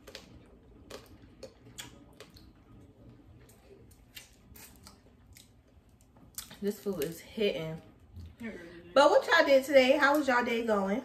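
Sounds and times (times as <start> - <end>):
food being chewed: 0.0 - 7.1.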